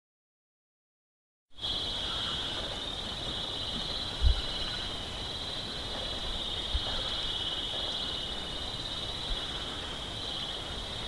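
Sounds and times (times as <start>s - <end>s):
bird reeling trill: 1.6s - 3.0s.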